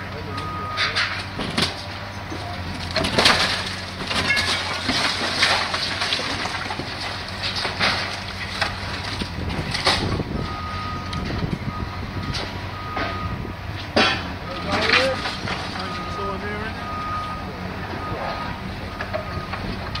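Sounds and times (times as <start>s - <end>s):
excavator engine running: 0.0s - 20.0s
concrete crunching and cracking: 0.2s - 11.6s, 13.8s - 17.3s
debris clattering: 0.4s - 11.6s, 13.8s - 20.0s.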